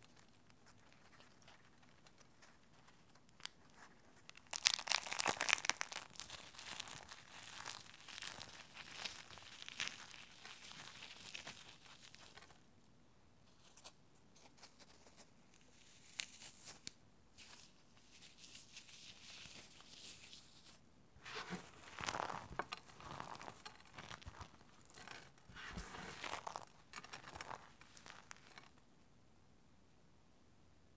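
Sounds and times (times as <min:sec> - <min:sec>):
eggshells crackling and crunching: 0:03.3 - 0:12.6, 0:21.8 - 0:28.8.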